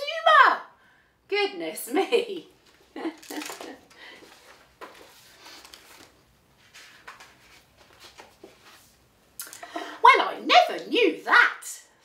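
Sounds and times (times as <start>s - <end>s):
book rustling and handling: 2.6s - 9.1s.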